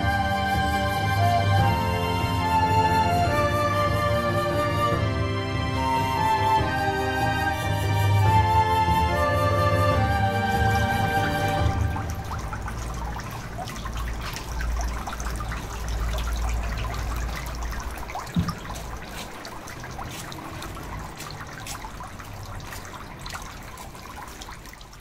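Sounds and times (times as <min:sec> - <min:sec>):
water trickling into basin: 0:06.2 - 0:25.0.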